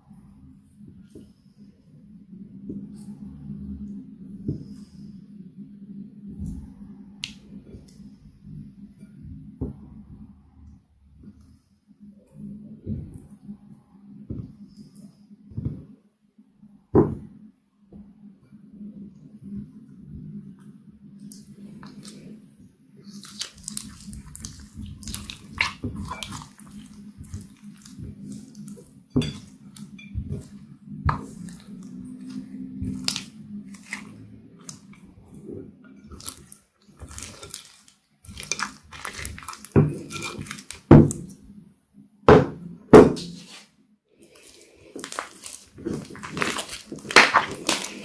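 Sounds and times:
slime squelching: 0:00.0 - 0:05.2, 0:19.8 - 0:41.6, 0:44.2 - 0:48.0
slime popping: 0:23.1 - 0:35.1, 0:36.1 - 0:41.3, 0:44.4 - 0:48.0.

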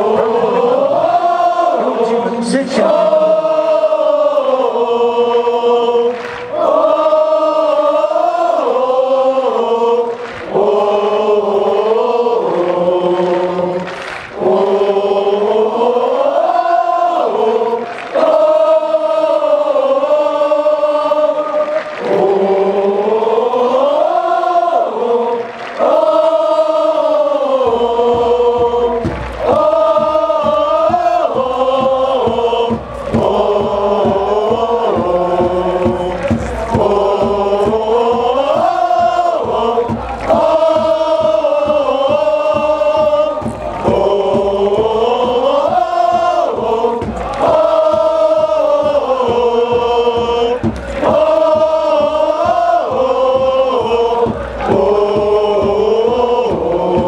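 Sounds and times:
crowd singing a chant: 0:00.0 - 0:57.0
low drumbeat: 0:27.0 - 0:57.0.

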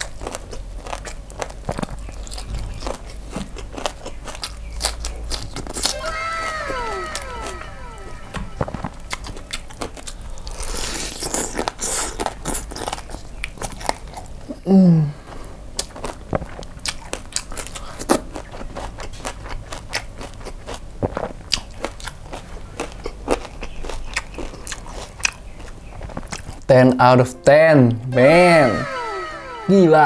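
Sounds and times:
crunching bites and wet chewing: 0:00.0 - 0:05.9, 0:09.8 - 0:14.5, 0:15.7 - 0:26.7
person humming: 0:05.9 - 0:09.0.

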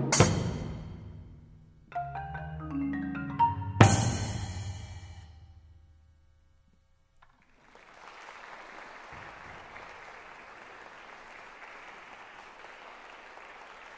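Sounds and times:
mallet percussion ringing notes: 0:01.9 - 0:05.2
audience applause: 0:07.3 - 0:13.9.

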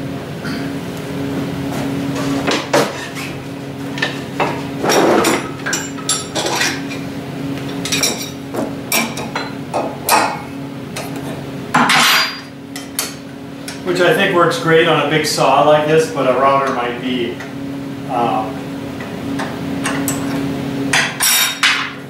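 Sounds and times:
steady hum: 0:00.0 - 0:22.0
metal clinking and clanking: 0:04.0 - 0:07.0, 0:11.8 - 0:13.2.

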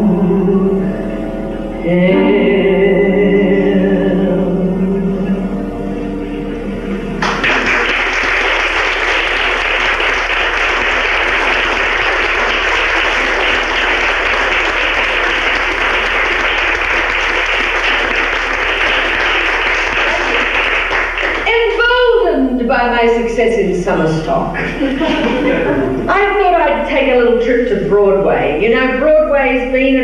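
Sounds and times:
audience applause: 0:07.2 - 0:21.8.

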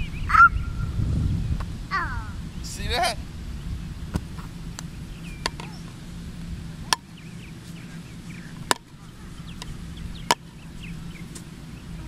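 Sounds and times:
birds chirping: 0:00.0 - 0:12.0
golf club striking balls: 0:04.1 - 0:06.0, 0:06.9 - 0:07.1, 0:08.6 - 0:09.0, 0:09.6 - 0:10.6.

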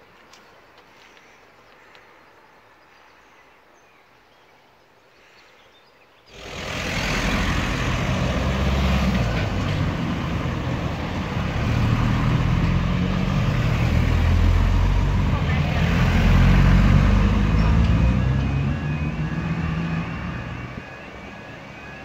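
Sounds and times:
deep engine rumble: 0:06.3 - 0:22.0
road traffic driving by: 0:06.3 - 0:22.0.

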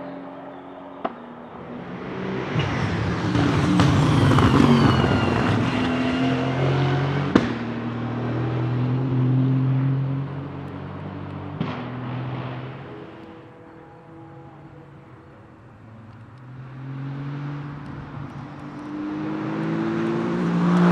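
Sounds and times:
race car engine passing: 0:00.0 - 0:20.9.

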